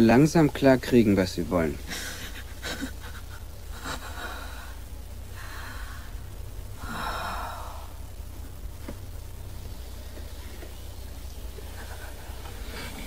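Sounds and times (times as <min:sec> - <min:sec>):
steady low hum: 0:00.0 - 0:13.0
person breathing heavily: 0:04.1 - 0:08.2.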